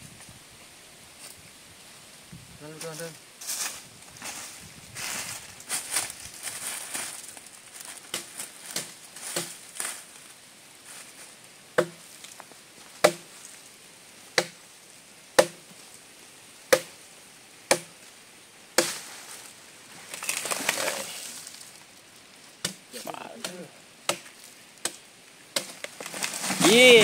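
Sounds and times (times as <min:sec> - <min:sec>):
chopping blows on wood: 0:08.1 - 0:09.5, 0:11.8 - 0:12.0, 0:13.0 - 0:13.3, 0:14.4 - 0:14.6, 0:15.4 - 0:15.6, 0:16.7 - 0:16.9, 0:17.7 - 0:17.9, 0:23.4 - 0:25.0.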